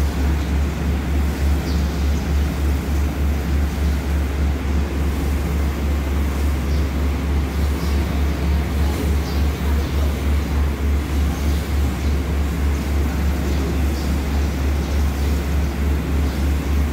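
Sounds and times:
train diesel engine idling: 0.0 - 16.9.

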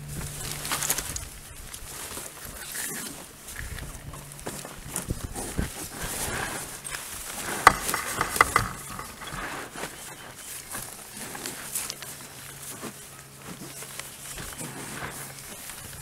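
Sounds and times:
knocks: 7.6 - 9.4.

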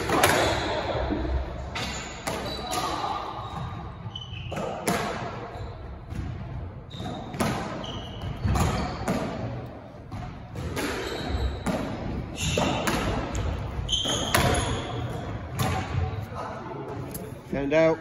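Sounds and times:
shoes squeaking on wooden floor: 11.0 - 11.7, 12.3 - 15.3.

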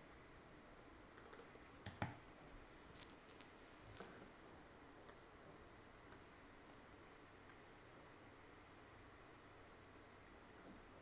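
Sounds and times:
computer keyboard clicking: 1.2 - 2.2
mouse clicks: 1.2 - 2.2.

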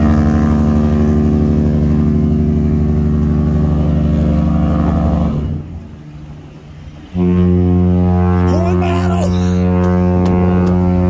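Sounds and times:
ship horn blast: 0.0 - 11.0.

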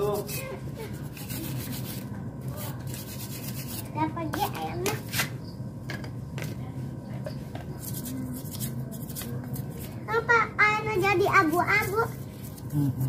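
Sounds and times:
rubbing and scraping engine parts: 0.0 - 4.0
steady low hum: 0.0 - 13.0
person speaking: 11.0 - 13.0.

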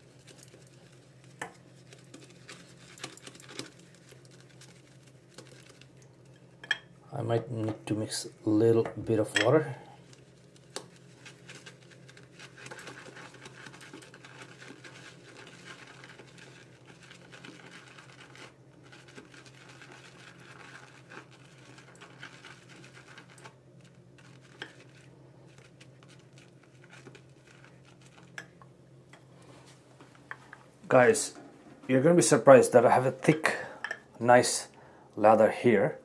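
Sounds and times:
shaving brush wet swishing: 10.5 - 28.3.

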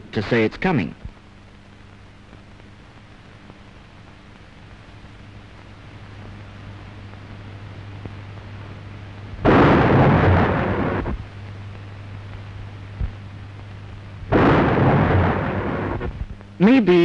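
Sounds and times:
steady low hum: 0.0 - 17.0
deck gun blasts: 9.4 - 11.2, 14.3 - 16.2.

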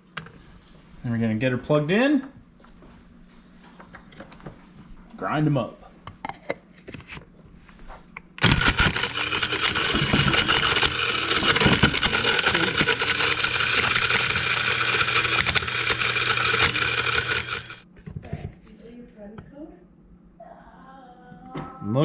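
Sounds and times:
electric blade grinder running: 8.4 - 17.8
pieces knocking in grinder: 8.4 - 17.8.

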